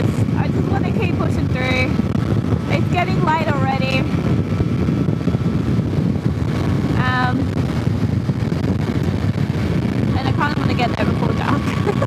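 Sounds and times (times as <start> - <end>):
motorcycle road noise: 0.0 - 12.0
wind rush: 0.0 - 12.0.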